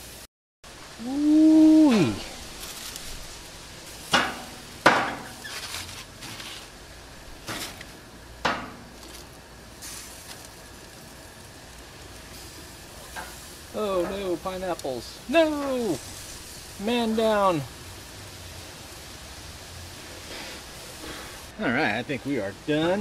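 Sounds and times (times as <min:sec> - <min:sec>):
food sizzling on grill: 0:00.0 - 0:23.0
metal tongs clanking on grill: 0:04.0 - 0:06.6, 0:13.0 - 0:15.0.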